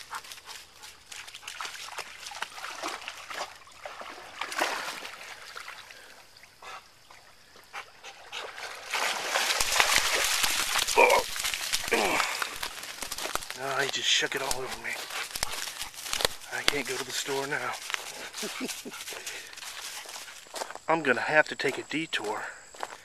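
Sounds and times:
dog splashing in water: 0.0s - 6.1s, 7.9s - 20.4s
water trickling: 0.0s - 20.6s
wet dog shaking off water: 1.1s - 5.4s, 8.4s - 20.2s.

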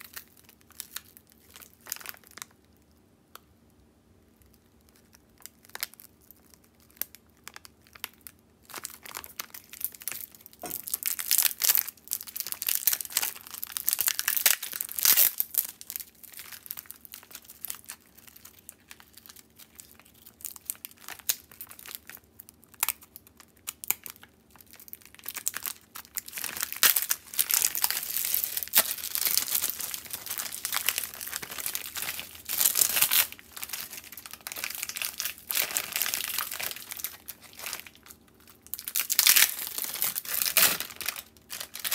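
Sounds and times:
plastic film crinkling and tearing: 0.0s - 2.8s, 4.5s - 41.9s.

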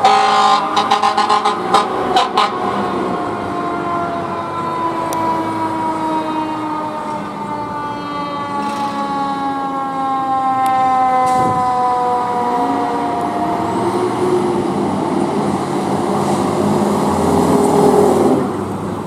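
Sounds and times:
siren sliding down in pitch: 0.0s - 14.8s
siren wailing: 0.0s - 15.3s
truck engine: 0.0s - 19.0s.

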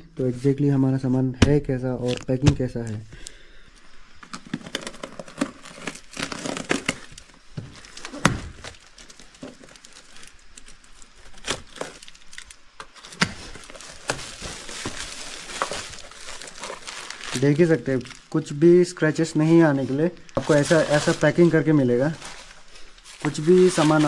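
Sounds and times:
tape tearing: 2.0s - 2.4s, 4.2s - 18.3s, 20.3s - 24.0s
packaging crinkling: 4.2s - 18.6s, 19.2s - 24.0s.

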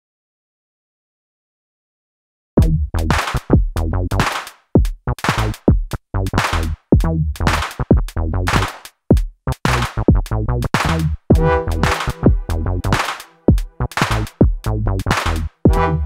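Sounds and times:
low synth bass line: 2.6s - 4.2s, 10.5s - 13.0s, 13.6s - 16.0s
drum machine hip-hop beat: 2.6s - 16.0s.

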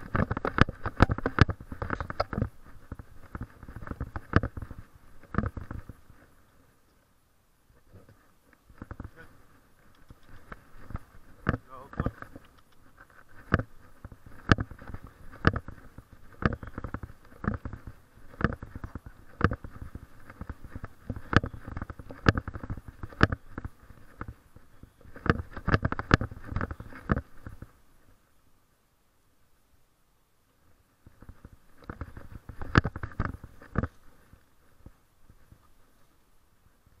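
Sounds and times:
faint rustling hiss: 0.0s - 37.0s.

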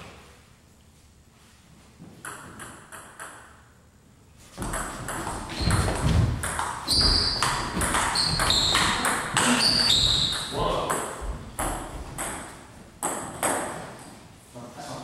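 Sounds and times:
shoes squeaking on wooden floor: 4.6s - 10.6s.

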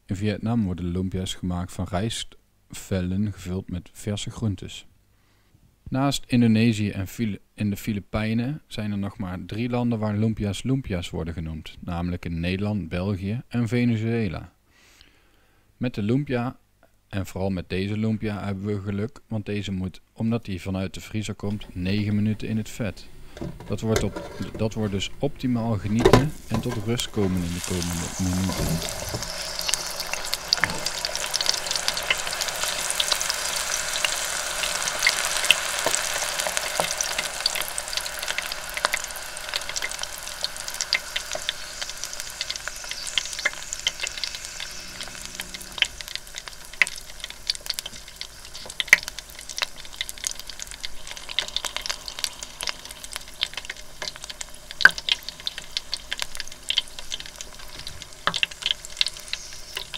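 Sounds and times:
oil sizzling and crackling: 23.2s - 59.9s.

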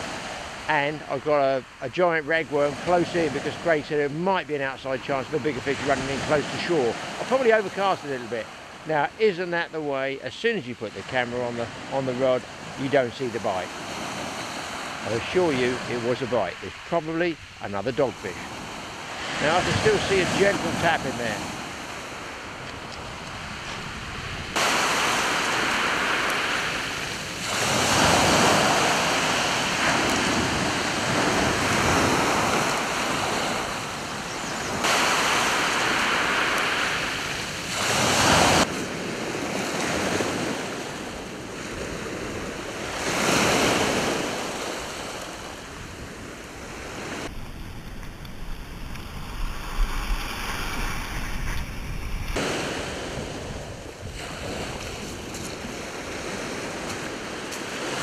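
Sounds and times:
waves breaking on pebble beach: 1.6s - 9.4s, 11.0s - 58.0s
wind on microphone: 18.3s - 58.0s.

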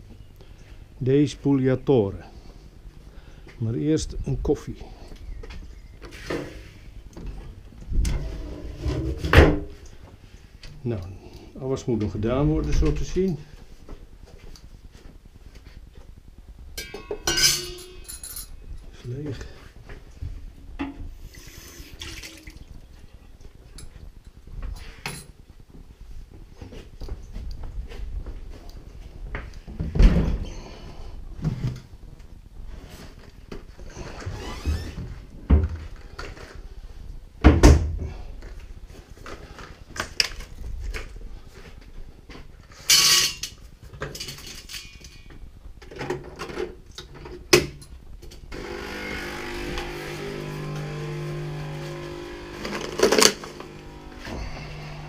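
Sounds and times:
kitchen objects clinking: 16.8s - 18.6s
appliance hum: 48.5s - 55.0s.

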